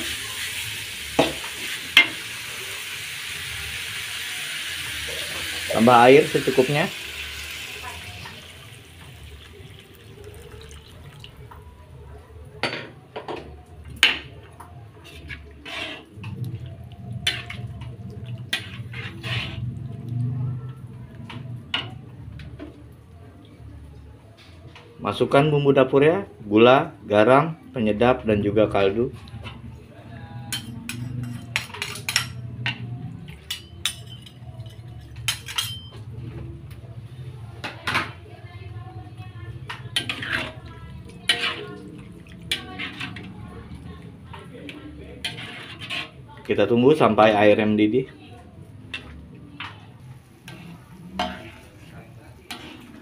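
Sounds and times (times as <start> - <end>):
water pouring into a wok: 0.0 - 11.6
metal spatula scraping a wok: 15.0 - 16.2, 17.2 - 19.9, 39.9 - 41.8, 42.5 - 43.4, 45.1 - 46.3, 50.2 - 53.0
metal ladle clinking on a wok: 51.2 - 51.7.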